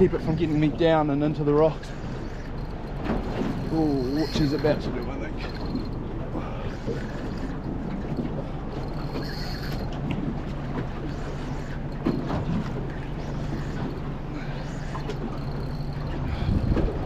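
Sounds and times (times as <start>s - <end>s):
boat motor humming: 0.0s - 17.0s
water noise: 0.0s - 17.0s
wind: 0.0s - 17.0s.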